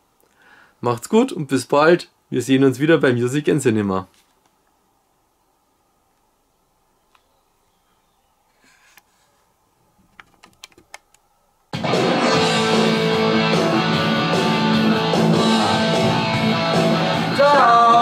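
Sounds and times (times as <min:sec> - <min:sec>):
rock song with electric guitar: 0:11.8 - 0:18.0
person singing: 0:12.2 - 0:18.0.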